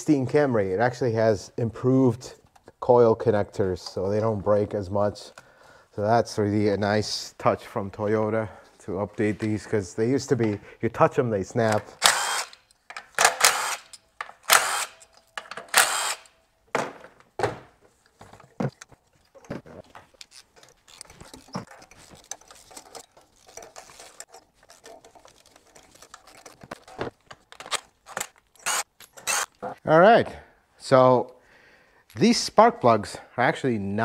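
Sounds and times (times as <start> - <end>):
cordless driver spinning bolts: 12.0 - 16.3, 28.6 - 29.5.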